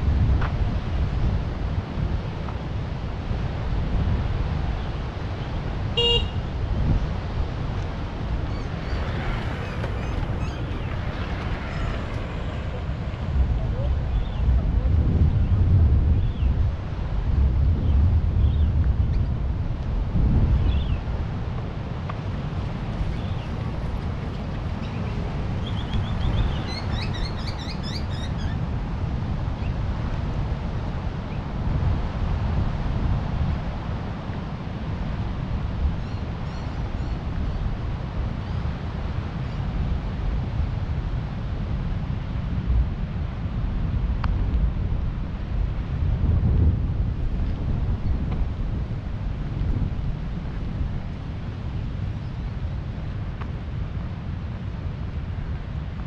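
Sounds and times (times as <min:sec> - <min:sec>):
wind rumble on microphone: 0:00.0 - 0:56.0
surf rushing: 0:05.9 - 0:15.3
bird chirping: 0:08.4 - 0:12.8, 0:24.8 - 0:28.6.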